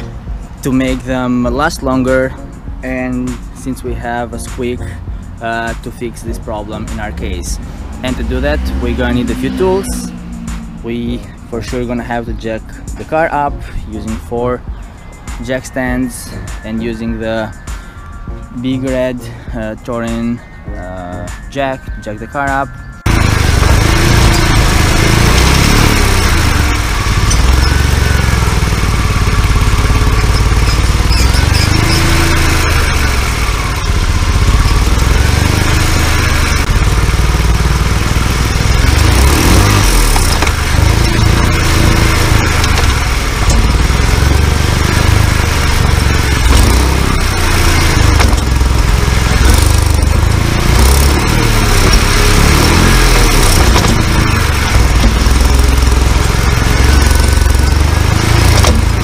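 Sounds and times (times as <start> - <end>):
drivetrain rumble: 0.0 - 21.4, 23.0 - 59.0
squealing u-joint: 23.8 - 36.5, 38.7 - 44.1, 50.8 - 56.0.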